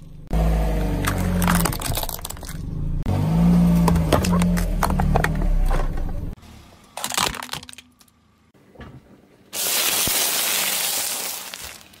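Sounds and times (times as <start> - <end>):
plastic pieces crackling: 9.6 - 12.0
tyre crunching wrappers and wafers: 9.6 - 12.0.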